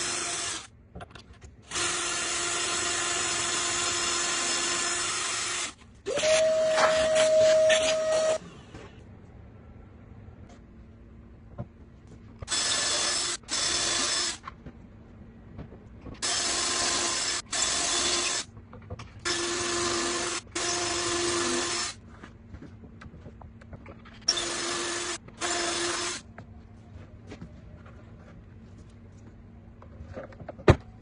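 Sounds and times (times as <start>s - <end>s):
cordless drill boring into wood: 0.0s - 0.7s, 1.7s - 8.4s, 12.5s - 14.4s, 16.2s - 18.4s, 19.3s - 22.0s, 24.3s - 26.2s.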